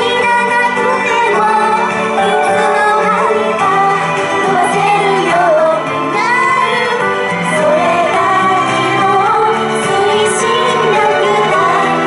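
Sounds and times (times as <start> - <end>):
women singing into microphones: 0.0 - 12.0
pop accompaniment: 2.2 - 5.7.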